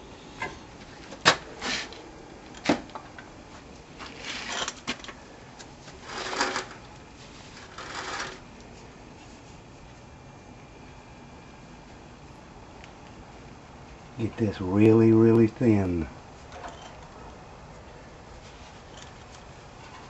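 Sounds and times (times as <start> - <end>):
metal plate scraping and rattling: 6.0 - 6.8, 7.6 - 8.4, 18.8 - 20.0.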